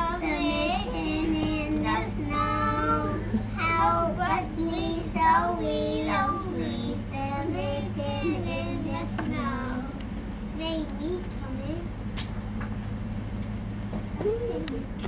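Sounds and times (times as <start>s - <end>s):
children singing together: 0.0s - 9.9s.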